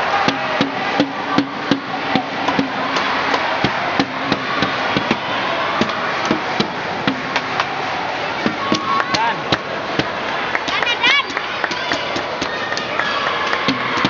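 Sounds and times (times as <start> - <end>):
crowd noise: 0.0 - 14.0
spectators knocking a rhythm: 0.0 - 14.0.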